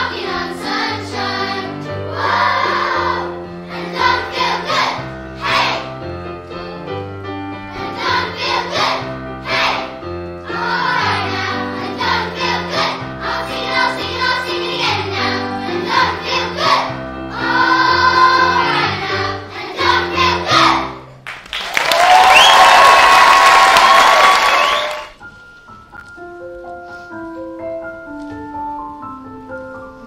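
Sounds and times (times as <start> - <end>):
children's choir singing: 0.0 - 6.0, 7.6 - 21.1
audience applause: 21.2 - 25.2.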